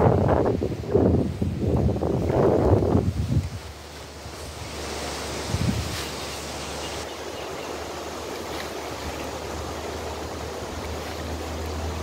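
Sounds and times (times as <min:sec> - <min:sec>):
wind buffeting microphone: 0:00.0 - 0:07.1.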